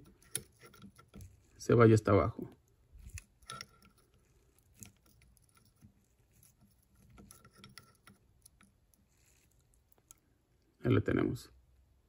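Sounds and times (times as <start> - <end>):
faint metal clicks of ratchet: 3.0 - 10.2.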